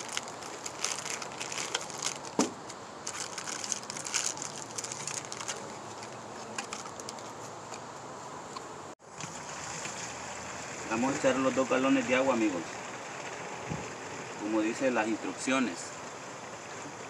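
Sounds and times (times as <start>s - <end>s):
plastic bag crinkling: 0.0s - 7.4s
cardboard box rustling: 0.0s - 7.8s.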